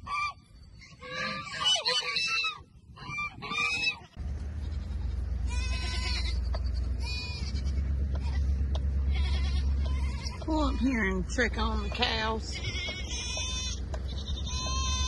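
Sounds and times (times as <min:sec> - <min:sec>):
steady low rumble: 0:02.4 - 0:15.0
goats bleating: 0:03.4 - 0:15.0.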